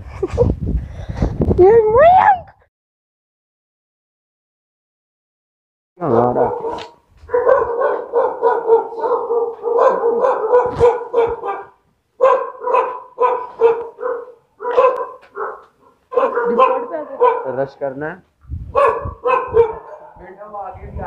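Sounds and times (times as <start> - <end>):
dog barking: 6.1 - 17.7, 18.7 - 20.3.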